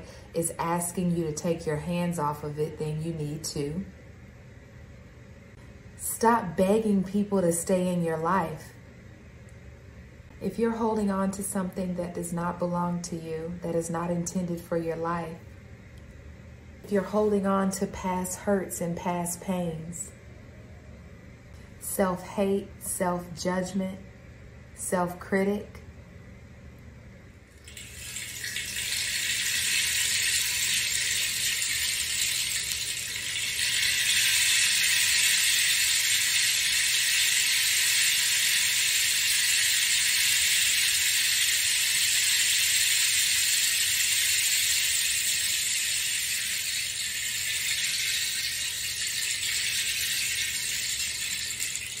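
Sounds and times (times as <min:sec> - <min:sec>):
rainstick rattling hiss: 0:27.6 - 0:52.0.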